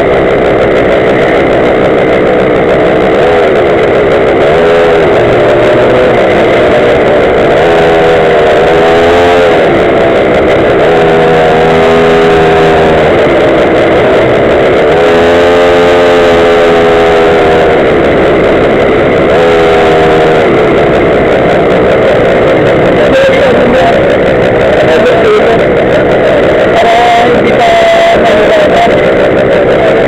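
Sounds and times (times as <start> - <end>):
small two-stroke engine revving: 0.0 - 30.0.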